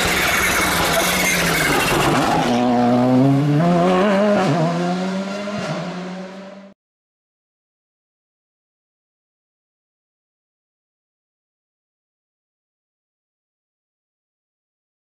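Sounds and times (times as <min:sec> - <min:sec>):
rally car engine accelerating: 0:00.0 - 0:06.8
road noise: 0:00.0 - 0:06.8.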